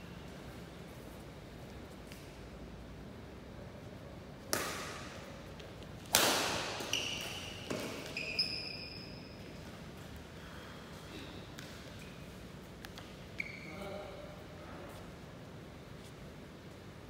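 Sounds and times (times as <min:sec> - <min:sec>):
badminton rackets hitting shuttlecock: 0:04.5 - 0:08.3
shoes squeaking on court: 0:06.6 - 0:10.1, 0:11.2 - 0:13.9.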